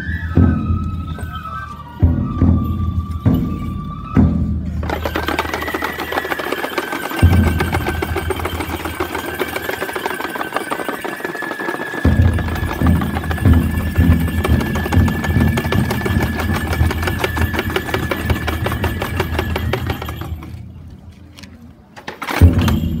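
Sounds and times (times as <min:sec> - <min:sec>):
wooden jaws clacking: 0:04.8 - 0:20.6.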